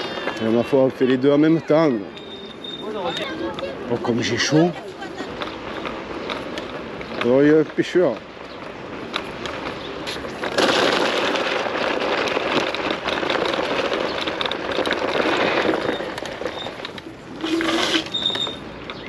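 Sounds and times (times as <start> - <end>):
road and wind noise: 0.0 - 19.0.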